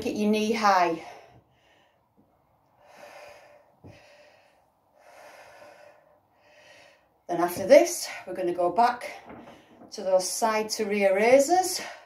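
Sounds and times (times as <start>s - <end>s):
woman breathing hard: 1.0s - 7.2s.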